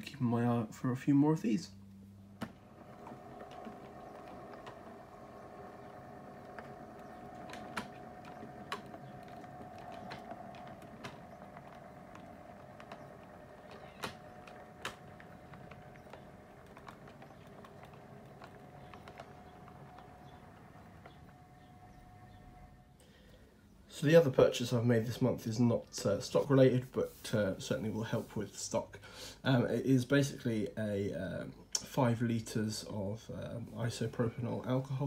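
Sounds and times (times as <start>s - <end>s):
wheels clicking on rails: 0.0s - 35.0s
model train motor whine: 2.5s - 23.1s.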